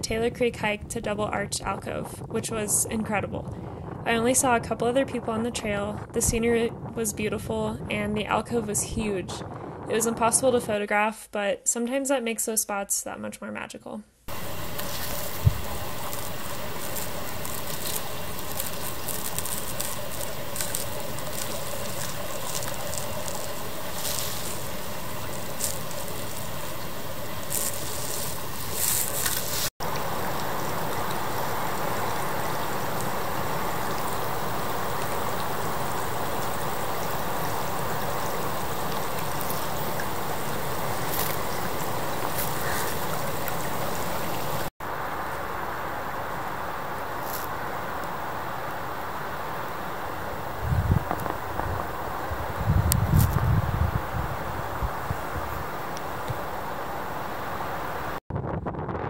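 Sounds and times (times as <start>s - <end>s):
creek water running: 14.3s - 58.2s.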